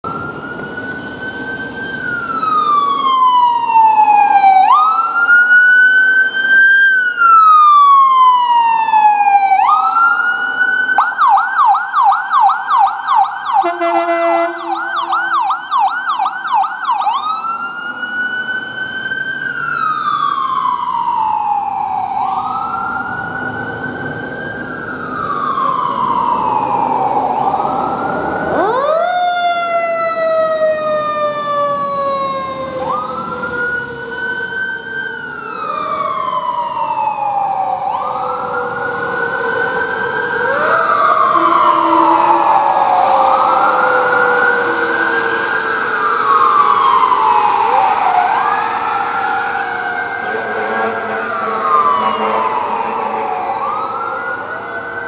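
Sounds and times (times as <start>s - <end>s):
wailing siren: 0.0s - 55.0s
fast yelping siren: 0.1s - 55.0s
short horn blast: 13.6s - 15.3s, 50.2s - 53.2s.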